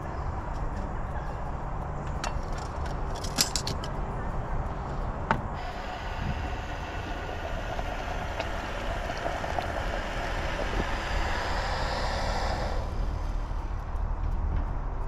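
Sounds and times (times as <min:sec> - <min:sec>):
water boiling in a pot: 0:05.6 - 0:13.3
gas stove burner hissing: 0:05.6 - 0:13.8.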